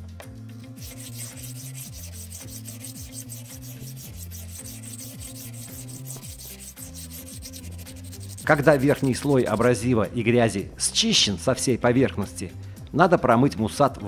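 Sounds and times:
faint background music: 0:00.0 - 0:14.0
file rasping on ceramic rod: 0:00.7 - 0:09.7.

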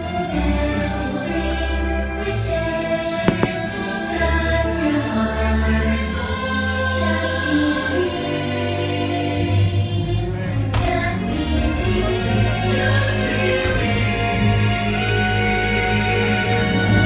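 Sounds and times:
choir singing: 0:00.0 - 0:17.0
firework bangs: 0:03.2 - 0:04.2.

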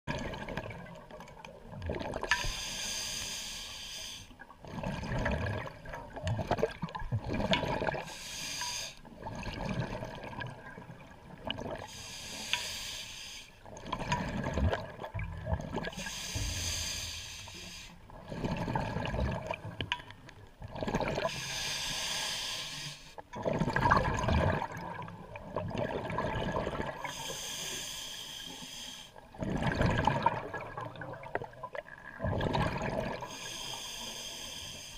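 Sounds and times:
exhaled bubbles rumbling: 0:00.1 - 0:02.4, 0:04.5 - 0:08.1, 0:09.1 - 0:11.9, 0:13.7 - 0:16.6, 0:18.1 - 0:21.3, 0:23.3 - 0:27.1, 0:29.2 - 0:33.3
regulator breathing hiss: 0:02.4 - 0:04.3, 0:08.1 - 0:09.0, 0:11.9 - 0:13.6, 0:16.0 - 0:18.0, 0:21.3 - 0:23.2, 0:27.1 - 0:29.2, 0:33.3 - 0:34.9.

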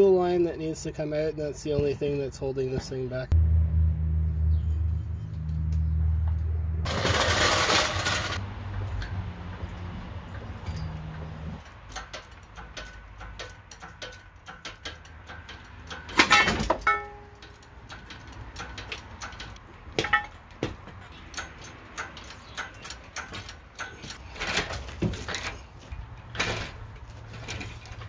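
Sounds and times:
low hum: 0:03.3 - 0:11.6
metal clanks: 0:04.6 - 0:09.7, 0:10.3 - 0:28.0
metal tools clinking and knocking: 0:10.3 - 0:28.0
metallic ring: 0:15.5 - 0:17.7.

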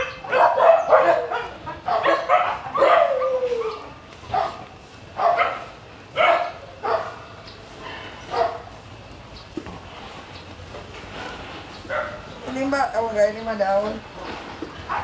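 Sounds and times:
dog howling: 0:00.0 - 0:04.0
dogs barking: 0:00.0 - 0:08.8, 0:11.9 - 0:12.4, 0:14.8 - 0:15.0.

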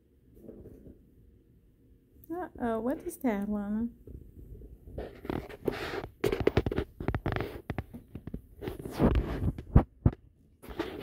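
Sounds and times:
soft knocks taps and rustles: 0:04.0 - 0:11.0.

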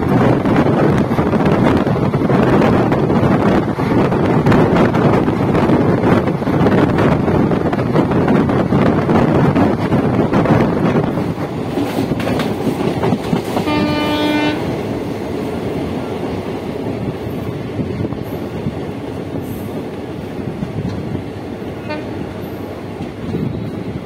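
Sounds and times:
train wheels rumbling on track: 0:00.0 - 0:24.0
wheels clacking over rail joints: 0:09.4 - 0:17.0
train horn: 0:13.6 - 0:14.7, 0:21.8 - 0:22.2.

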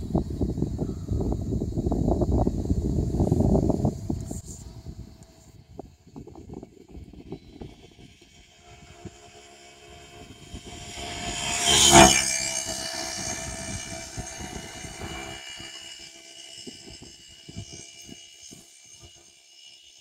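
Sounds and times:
motor vehicle passing by: 0:07.0 - 0:19.0.

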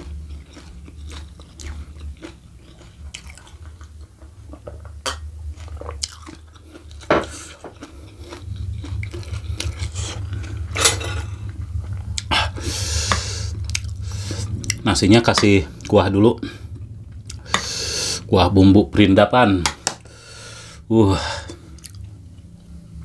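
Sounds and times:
chewing: 0:00.0 - 0:18.3, 0:21.5 - 0:22.5
low hum: 0:00.0 - 0:23.0
scraping: 0:02.7 - 0:18.3.

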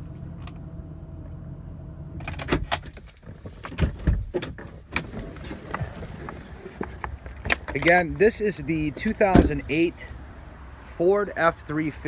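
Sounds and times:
engine idling hum: 0:00.0 - 0:03.5.

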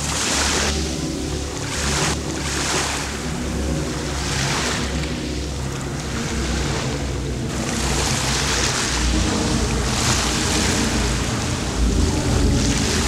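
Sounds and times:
low steady rumble: 0:05.0 - 0:13.0
waves washing against rocks: 0:07.5 - 0:13.0.

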